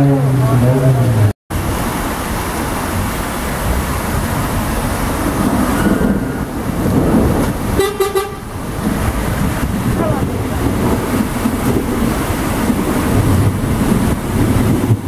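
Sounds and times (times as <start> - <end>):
floodwater running over street: 0.0 - 15.0
heavy rain: 0.0 - 15.0
car horn toot: 7.8 - 8.5.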